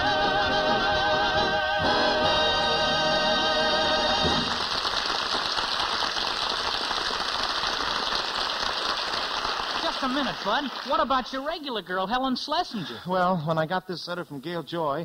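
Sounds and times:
men singing with vibrato: 0:00.0 - 0:04.6
audience applauding: 0:04.1 - 0:11.4.

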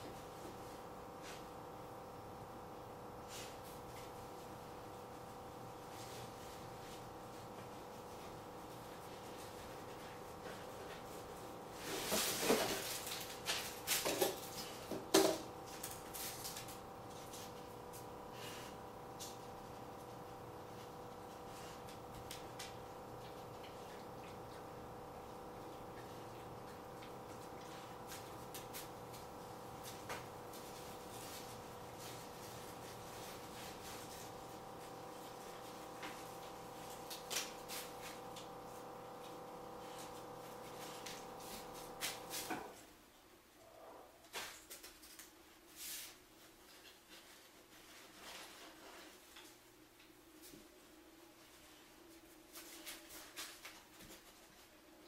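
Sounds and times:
steady hum: 0:00.0 - 0:43.5.

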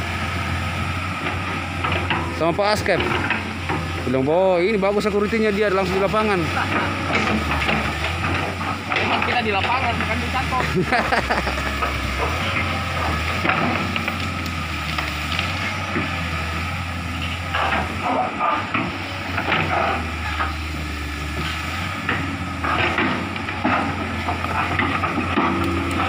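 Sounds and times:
excavator diesel engine running: 0:00.0 - 0:26.0
crackling and clattering: 0:05.7 - 0:26.0.

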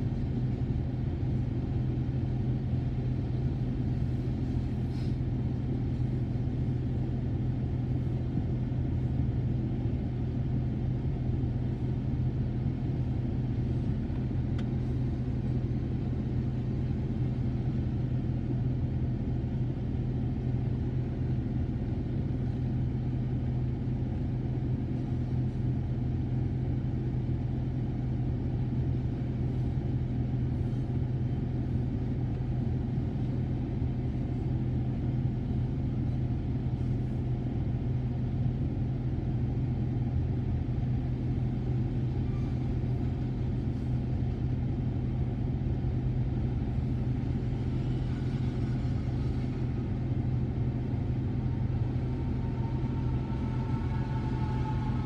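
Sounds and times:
constant low hum: 0:00.0 - 0:55.0
freight train rumbling past: 0:18.9 - 0:55.0.

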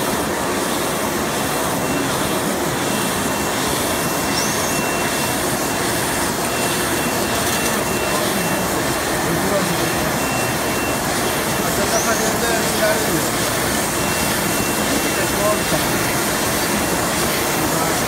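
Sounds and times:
machine whirring with high whine: 0:00.0 - 0:18.0.

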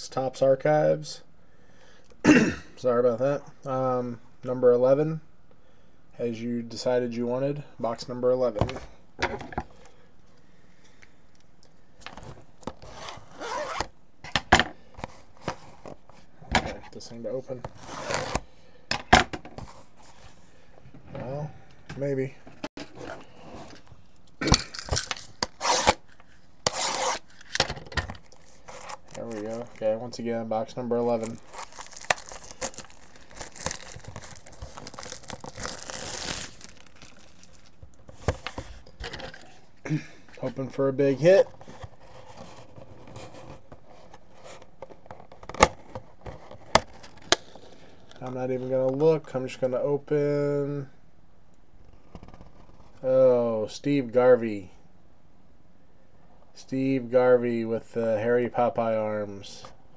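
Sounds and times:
packaging crinkling and tearing: 0:24.6 - 0:29.9, 0:31.1 - 0:38.8
shrink wrap ripping: 0:28.2 - 0:29.8, 0:31.1 - 0:37.8.

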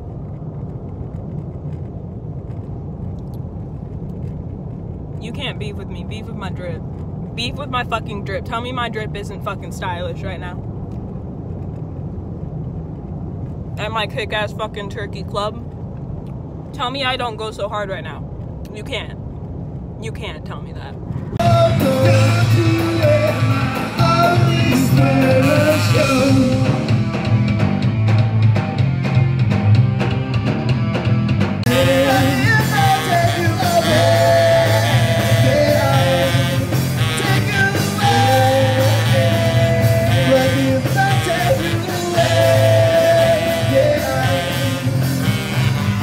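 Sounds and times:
person singing: 0:21.4 - 0:26.9, 0:31.7 - 0:45.3
live rock band playing: 0:21.4 - 0:46.0.

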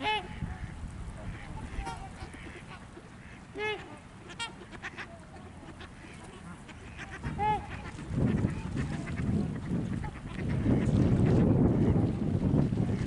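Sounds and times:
wind rumble on microphone: 0:00.0 - 0:02.8, 0:06.8 - 0:13.0
waterfowl honking: 0:00.0 - 0:12.1.

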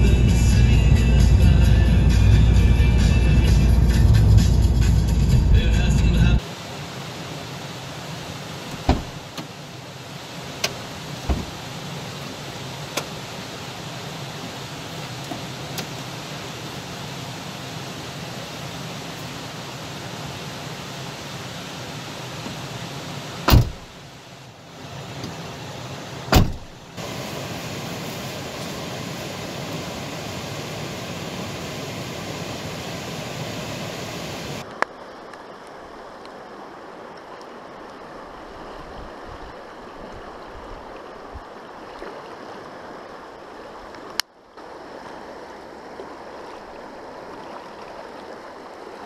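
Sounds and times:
fast-flowing river water rushing: 0:06.1 - 0:49.0
sharp knocks: 0:23.5 - 0:23.8.

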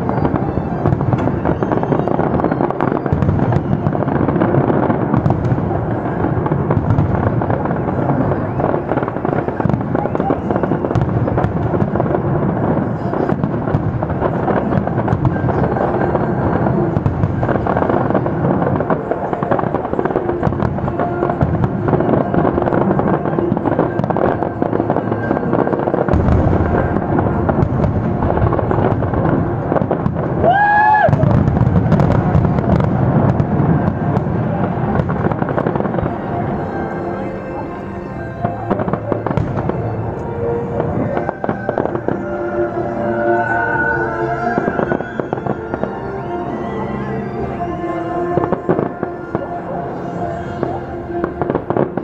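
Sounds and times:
rising high tone: 0:35.9 - 0:51.9.

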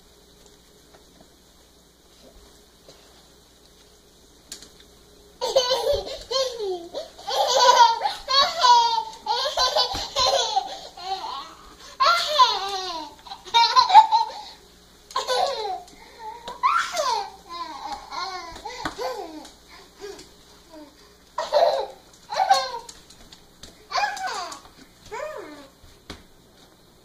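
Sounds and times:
toddler laughing: 0:05.4 - 0:14.6, 0:15.2 - 0:15.9, 0:16.5 - 0:19.5, 0:21.4 - 0:22.9.

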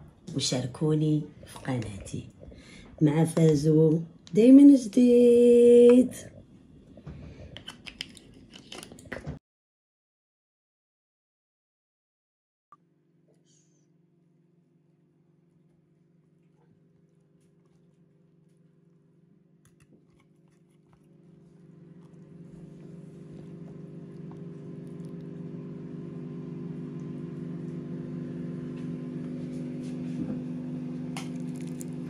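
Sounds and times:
steady low hum: 0:13.4 - 0:32.0.

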